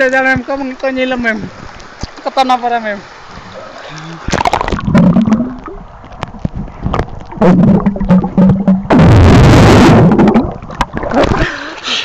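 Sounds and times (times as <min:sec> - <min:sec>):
churning water rush: 0:00.0 - 0:12.0
muffled underwater knocks: 0:04.3 - 0:09.1
low hum: 0:04.8 - 0:11.3.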